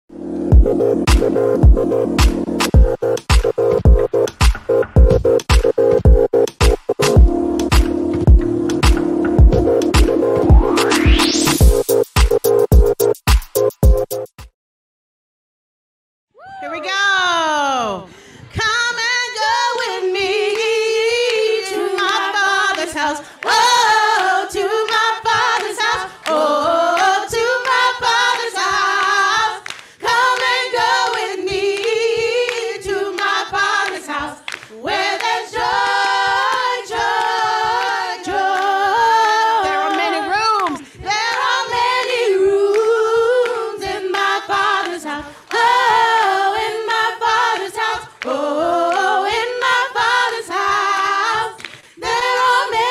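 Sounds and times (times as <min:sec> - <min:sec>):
hand claps: 0:01.1 - 0:03.6, 0:22.0 - 0:38.0, 0:39.6 - 0:46.0, 0:50.6 - 0:51.9
women singing a cappella: 0:17.2 - 0:52.9.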